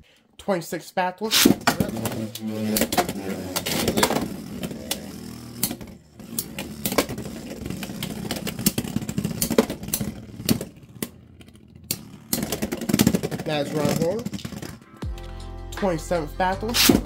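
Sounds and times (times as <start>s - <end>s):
spinning tops whirring: 1.3s - 14.9s
tops clacking together: 1.4s - 15.2s.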